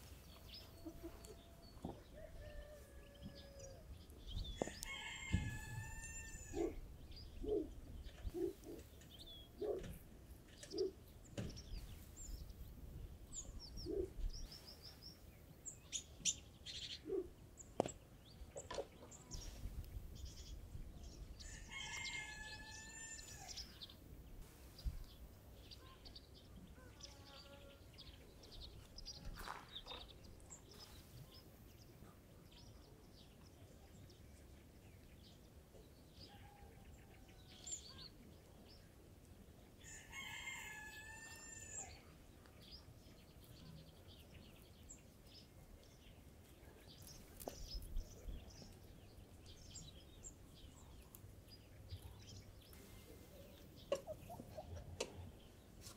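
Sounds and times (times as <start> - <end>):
small birds chirping: 0.0 - 55.9
rooster crowing: 0.9 - 3.9, 4.6 - 6.8, 21.4 - 23.6, 39.8 - 42.0.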